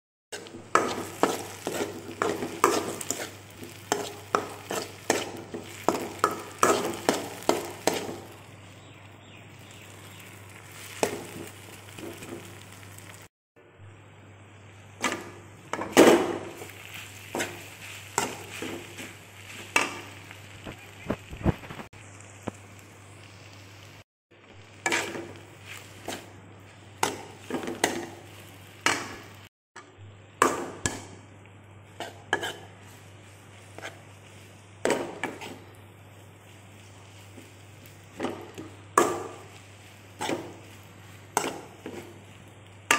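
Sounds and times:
frying sizzle: 0.3s - 13.3s, 13.9s - 42.9s
spatula scraping pan: 0.4s - 8.4s, 15.0s - 20.3s, 24.8s - 26.4s, 31.9s - 42.4s.

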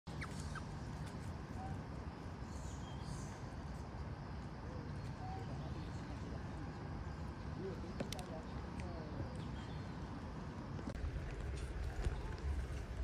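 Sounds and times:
faint animal calls: 0.1s - 3.3s
steady low rumble: 0.1s - 13.0s.

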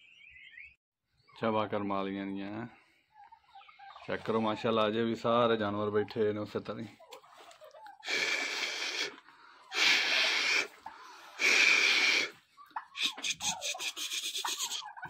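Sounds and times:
turkey hissing: 7.9s - 15.0s
rattling turkey call: 8.0s - 15.0s.

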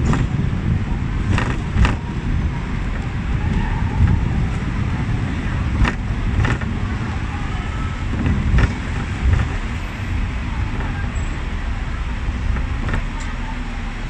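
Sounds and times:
tram wheels rumbling on rails: 0.0s - 14.0s
sharp knocks and rattles: 1.2s - 2.1s, 5.7s - 6.8s, 8.1s - 9.9s, 12.2s - 13.4s.

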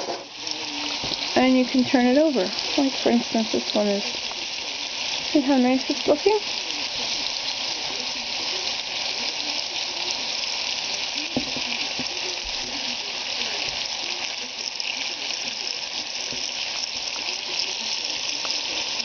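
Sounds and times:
bacon sizzling: 0.0s - 19.0s
light knock: 11.4s - 11.7s.

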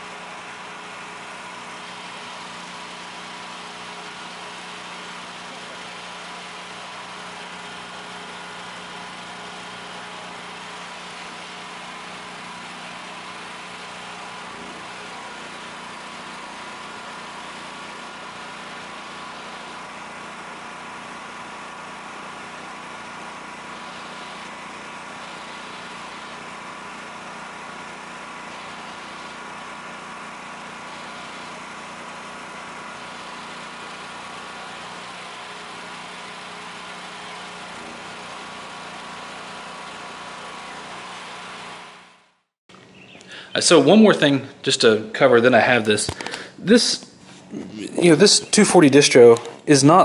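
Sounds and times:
generator engine running: 0.0s - 50.0s.

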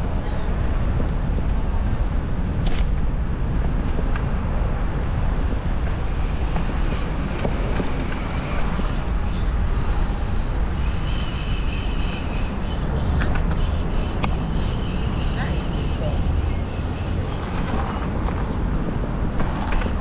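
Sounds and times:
street traffic: 0.0s - 20.0s
wind buffeting microphone: 0.0s - 20.0s.

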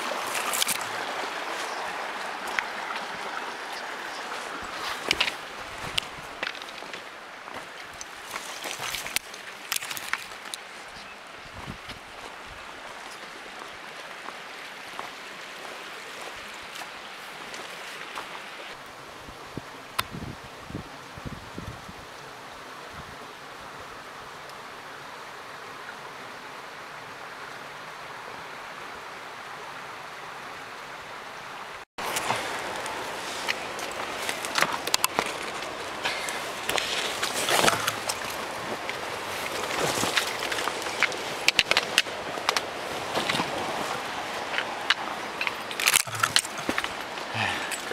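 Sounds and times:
footsteps on sandy ground: 0.0s - 10.9s
creek water rushing over rock: 0.0s - 20.6s, 22.0s - 47.9s
clothing rustle: 32.0s - 44.8s.

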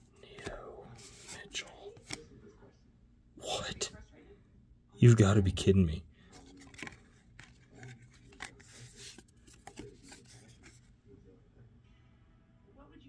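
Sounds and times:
trading cards rustling and sliding: 0.3s - 2.3s, 6.3s - 10.9s.

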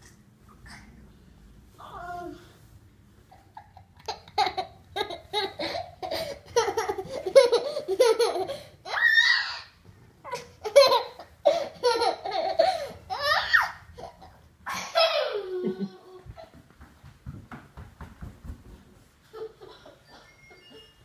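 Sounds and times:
small child laughing: 3.3s - 9.5s, 10.3s - 16.6s
child squealing: 8.9s - 9.7s, 13.2s - 13.8s.

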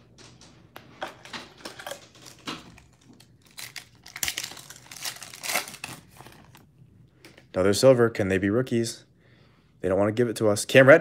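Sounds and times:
foil pack crinkling: 1.6s - 6.7s.

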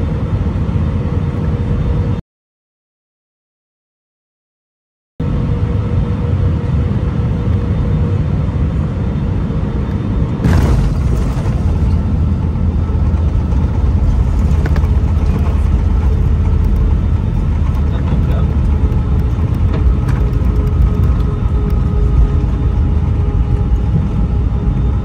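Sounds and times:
aircraft rolling on runway rumble: 5.2s - 25.0s
airliner cabin noise: 5.2s - 25.0s.

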